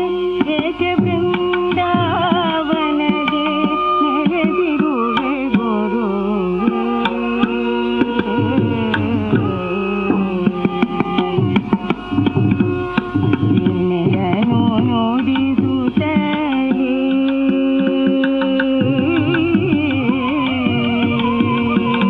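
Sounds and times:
hand drum strokes: 0.0 - 22.0
ornamented sliding melody: 0.0 - 22.0
steady drone: 6.1 - 14.6.

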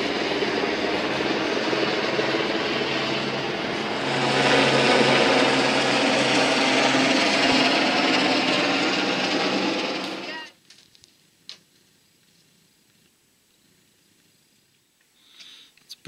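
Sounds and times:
helicopter rotor and engine: 0.0 - 10.6.

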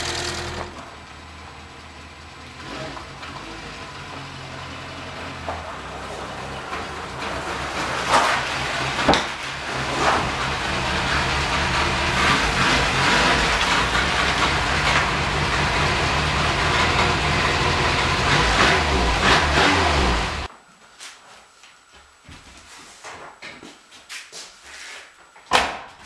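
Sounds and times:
car engine running: 0.0 - 20.5.

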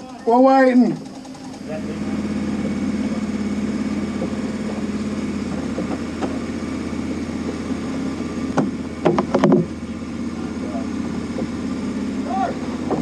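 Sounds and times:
vehicle engine idling: 0.0 - 13.0
sharp knocks: 8.6 - 9.7.

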